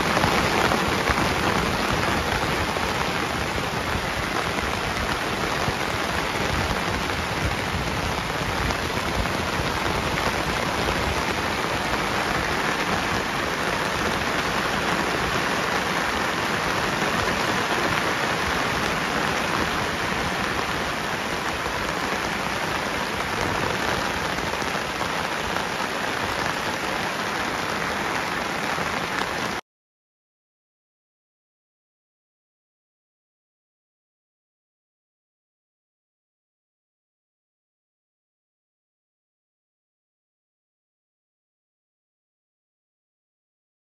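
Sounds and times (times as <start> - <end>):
heavy rain pouring: 0.0 - 29.6.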